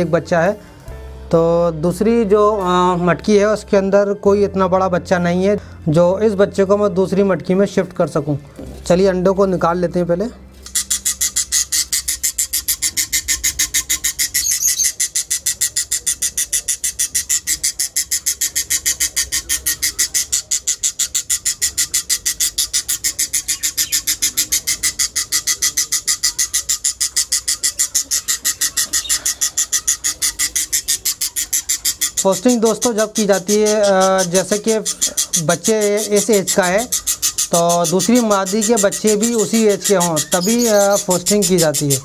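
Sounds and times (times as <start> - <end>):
budgerigar chick calling: 8.9 - 42.0.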